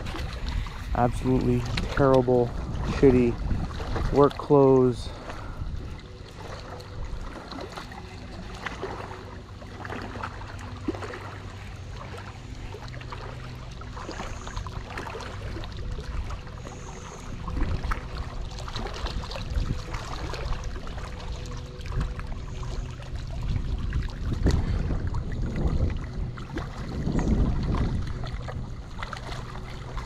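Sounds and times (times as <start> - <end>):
wind on microphone: 0.0 - 8.5, 14.0 - 30.0
waves lapping against rocks: 0.0 - 30.0.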